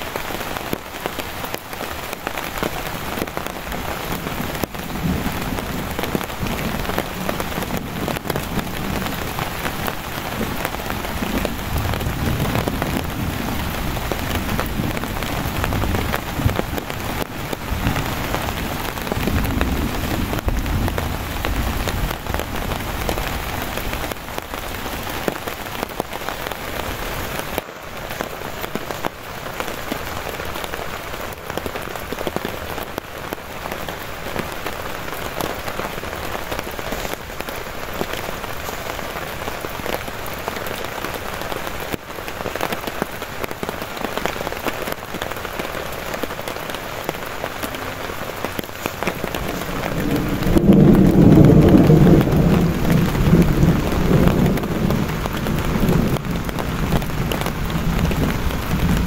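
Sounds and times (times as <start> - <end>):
heavy rain on tent fabric: 0.0 - 59.0
rolls of thunder: 49.2 - 59.0.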